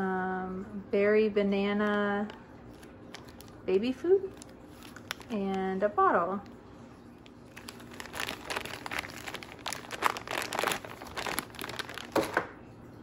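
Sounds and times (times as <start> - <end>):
packaging crinkling: 1.9 - 5.8, 6.4 - 12.6.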